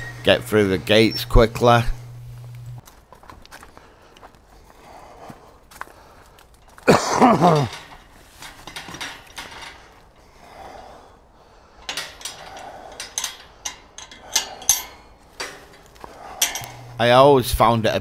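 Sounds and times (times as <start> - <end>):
gate hinge squeal: 0.0 - 2.3
metallic latch clinks and rattles: 7.4 - 10.2, 11.8 - 17.0.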